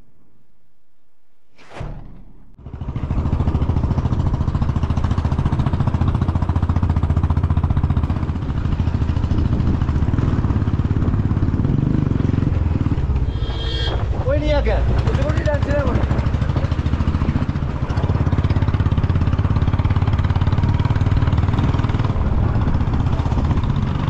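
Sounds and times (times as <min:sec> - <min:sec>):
brief whoosh: 0:01.5 - 0:02.6, 0:13.0 - 0:14.3
motorcycle engine rumble: 0:02.4 - 0:24.0
wind rushing: 0:10.9 - 0:15.2.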